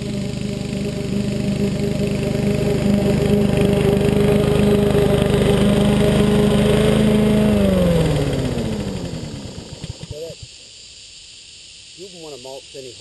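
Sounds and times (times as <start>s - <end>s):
lawnmower engine running: 0.0s - 10.3s.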